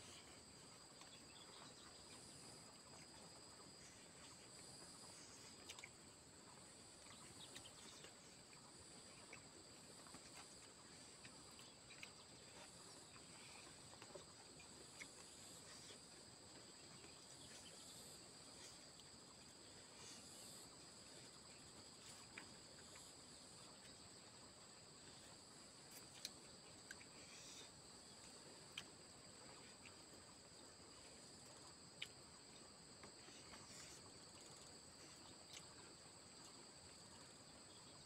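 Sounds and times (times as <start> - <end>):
clicks and rustles of eating by hand: 5.6 - 6.0, 7.0 - 17.7, 25.9 - 29.0.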